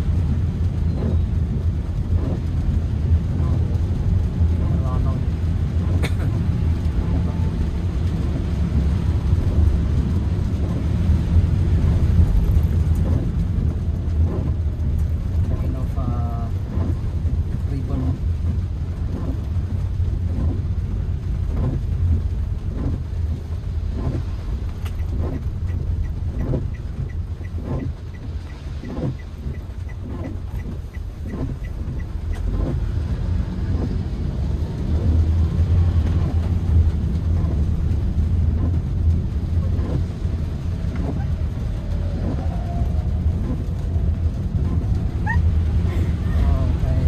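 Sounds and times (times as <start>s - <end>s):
car engine and tyre rumble: 0.0s - 47.0s
regular ticking: 24.8s - 32.8s.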